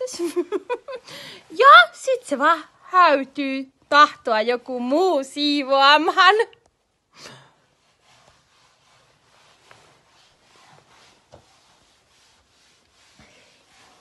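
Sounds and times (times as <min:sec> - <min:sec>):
rubbing strokes: 0:07.6 - 0:14.0.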